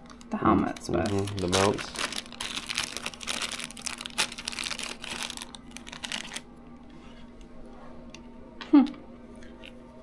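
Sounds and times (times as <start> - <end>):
plastic bag crinkling: 0.0 - 6.5
faint steady hum: 0.0 - 10.0.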